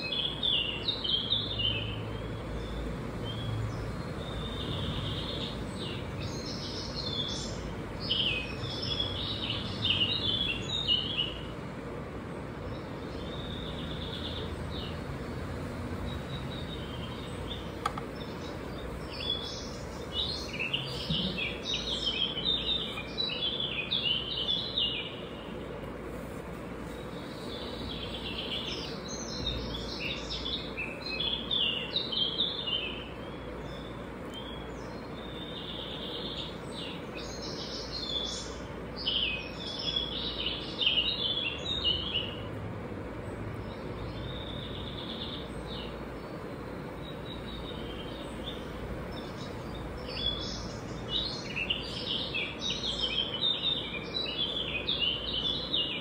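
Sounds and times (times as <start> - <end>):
faint hum: 0.0 - 56.0
small birds chirping: 0.0 - 56.0.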